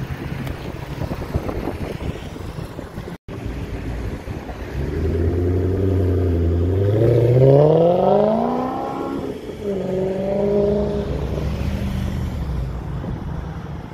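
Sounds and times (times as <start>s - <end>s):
car engine accelerating: 3.3s - 13.9s.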